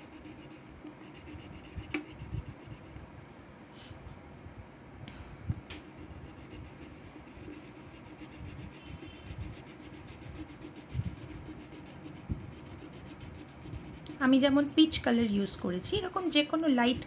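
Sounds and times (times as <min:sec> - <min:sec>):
crayon rubbing on paper: 0:00.0 - 0:03.0, 0:05.8 - 0:15.2, 0:15.9 - 0:17.0.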